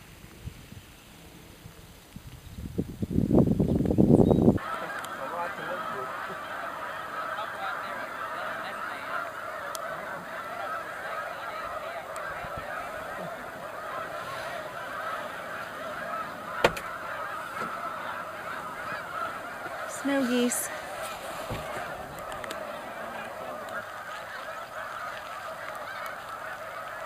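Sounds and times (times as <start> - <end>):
flock of geese calling: 4.6 - 27.0.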